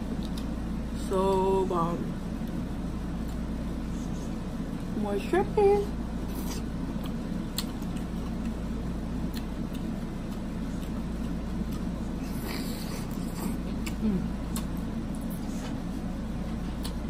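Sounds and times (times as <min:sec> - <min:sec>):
steady low hum: 0:00.0 - 0:17.0
wet mouth clicks from chewing: 0:06.5 - 0:08.6, 0:09.2 - 0:11.9, 0:13.1 - 0:15.3.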